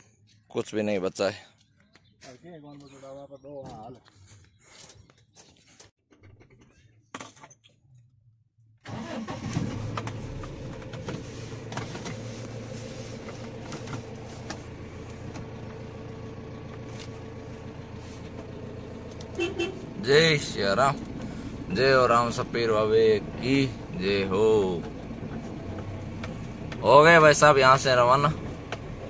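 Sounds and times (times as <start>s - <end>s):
vehicle engine starting and running: 8.1s - 29.0s.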